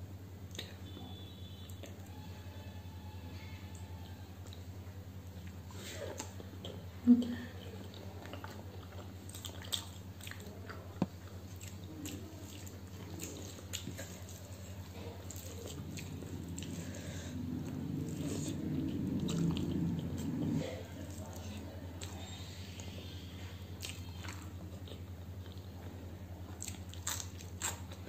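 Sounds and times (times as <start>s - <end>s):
low electrical hum: 0.0s - 28.0s
fingers squishing food: 26.4s - 28.0s.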